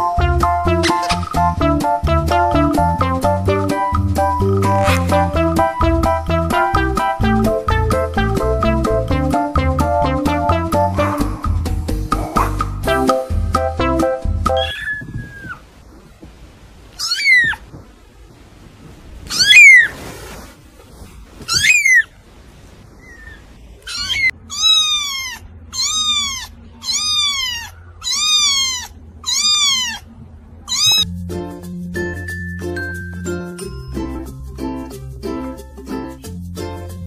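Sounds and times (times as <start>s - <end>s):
kittens mewing: 14.5s - 15.7s, 16.9s - 17.9s, 19.3s - 19.9s, 21.5s - 22.1s, 23.0s - 31.1s.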